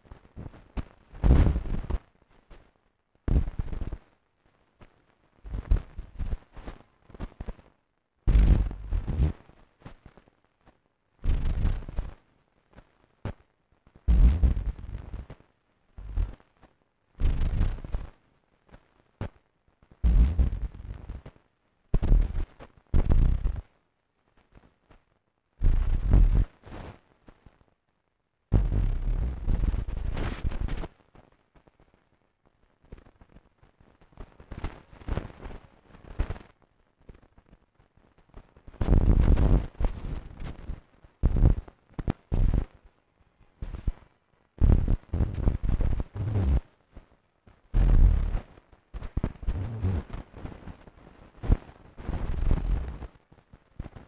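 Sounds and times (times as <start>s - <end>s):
bursts of rough bass-heavy noise: 8.3s - 9.3s, 14.1s - 15.1s, 16.0s - 16.4s, 20.0s - 21.0s, 28.5s - 29.7s, 44.6s - 45.6s, 46.2s - 46.6s, 47.8s - 48.4s, 49.5s - 50.1s
harsh bass-heavy noise bursts: 8.3s - 9.3s, 11.2s - 12.1s, 14.1s - 15.2s, 16.0s - 16.4s, 17.2s - 18.0s, 20.0s - 21.2s, 22.0s - 23.6s, 25.6s - 26.5s, 28.5s - 30.8s, 38.8s - 40.0s, 41.2s - 41.6s, 44.6s - 46.6s, 47.8s - 48.4s, 49.3s - 50.2s, 52.2s - 53.0s.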